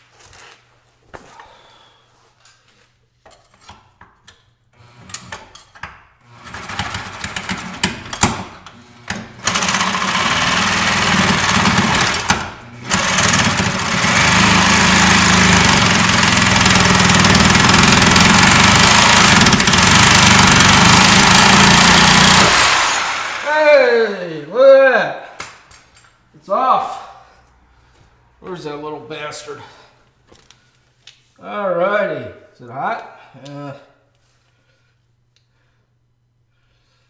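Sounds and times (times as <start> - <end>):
reciprocating saw cutting metal: 9.4 - 23.5.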